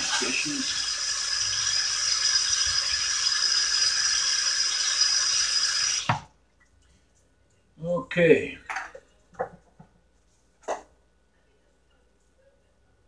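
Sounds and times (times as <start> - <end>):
faucet running into sink: 0.0 - 6.3.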